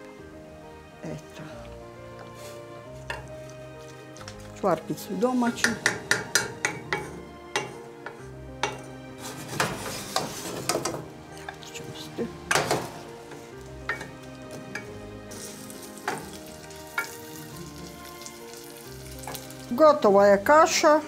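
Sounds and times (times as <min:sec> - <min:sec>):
wooden spoon scraping a pot: 0:02.2 - 0:11.8
onion sizzling in a pot: 0:02.4 - 0:21.0.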